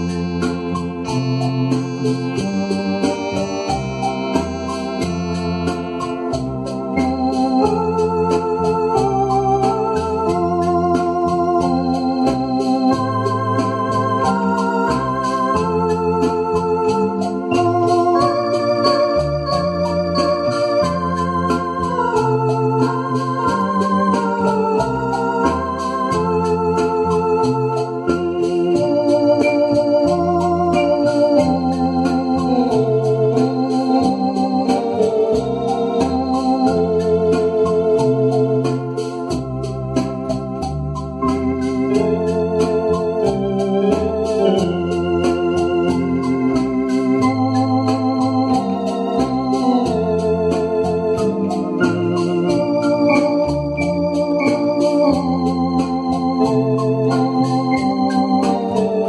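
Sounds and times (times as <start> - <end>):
electronic organ playing hymn: 0.0 - 59.0.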